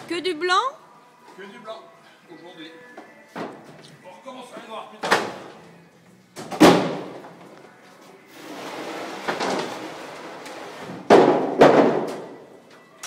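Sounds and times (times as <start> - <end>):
plastic crates knocking on press: 11.1 - 12.2.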